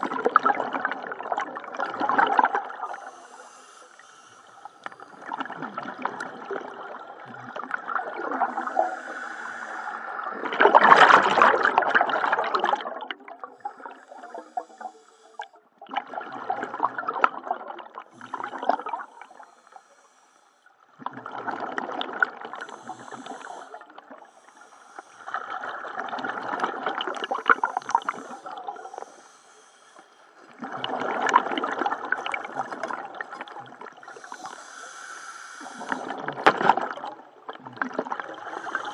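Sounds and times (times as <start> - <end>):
diver breathing through regulator: 2.6 - 5.4, 8.2 - 10.4, 13.5 - 15.6, 18.1 - 20.8, 22.5 - 25.8, 27.0 - 30.6, 33.9 - 36.2, 38.2 - 38.9.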